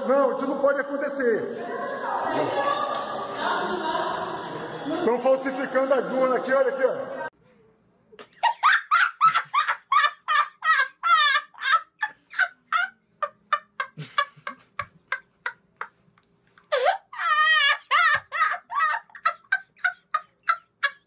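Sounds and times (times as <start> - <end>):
boy laughing hysterically: 8.4 - 16.0, 16.7 - 21.0.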